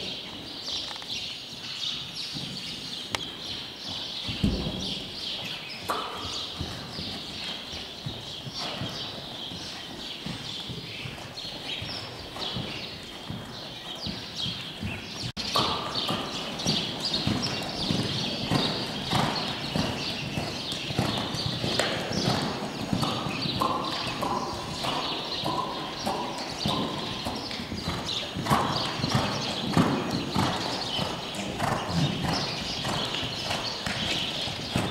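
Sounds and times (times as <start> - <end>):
horse hoofbeats trotting: 0.0 - 34.9.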